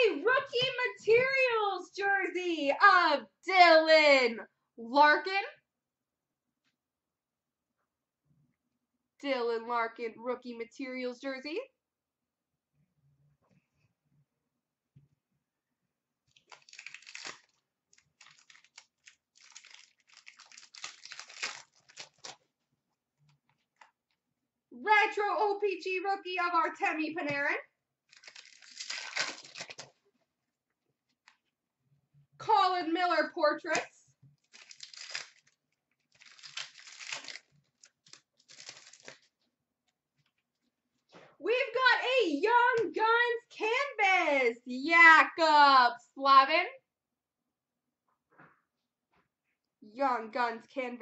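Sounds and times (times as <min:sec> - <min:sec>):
card pack wrapper crinkling and tearing: 0:16.3 - 0:22.5, 0:28.1 - 0:30.0, 0:34.4 - 0:39.4.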